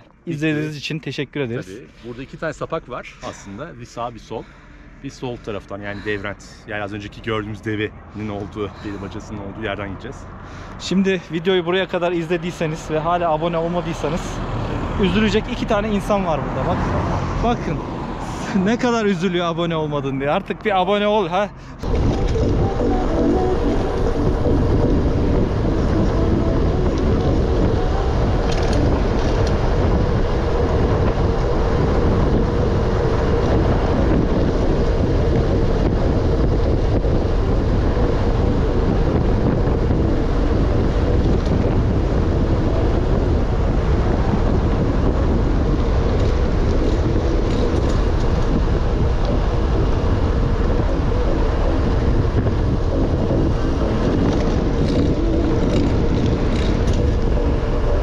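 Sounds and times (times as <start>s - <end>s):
wind rushing over microphone: 5.5s - 58.0s
low rumble: 21.4s - 58.0s.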